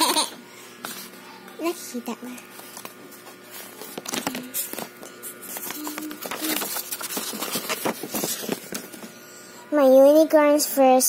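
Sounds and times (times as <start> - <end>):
paper rustling: 2.4 - 9.1.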